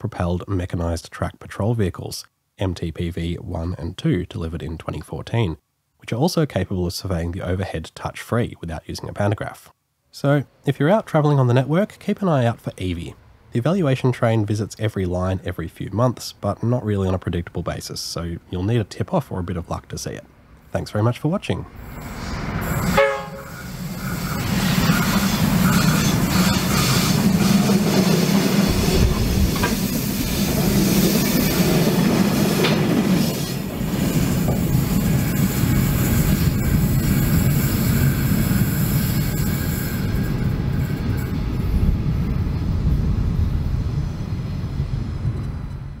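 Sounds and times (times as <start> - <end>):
diesel locomotive engines running: 21.8 - 46.0
steel wheels on rails: 22.7 - 41.7
train horn: 22.9 - 23.8.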